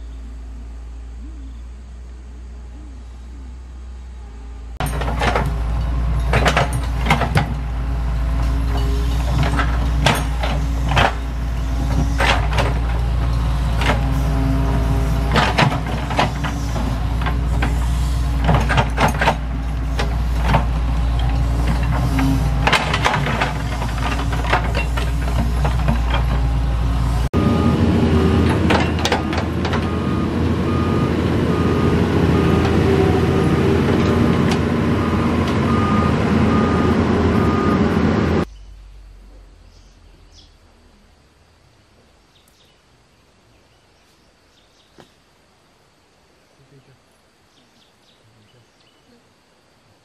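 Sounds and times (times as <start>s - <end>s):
diesel engine running under load: 0.0s - 40.4s
knocks and rattles: 4.8s - 26.6s, 28.4s - 30.0s
beeping travel alarm: 35.0s - 38.0s.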